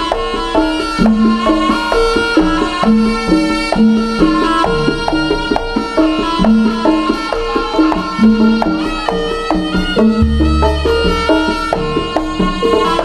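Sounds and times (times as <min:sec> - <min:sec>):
hand drum strokes: 0:00.0 - 0:13.0
ensemble stepping melody: 0:10.0 - 0:12.4.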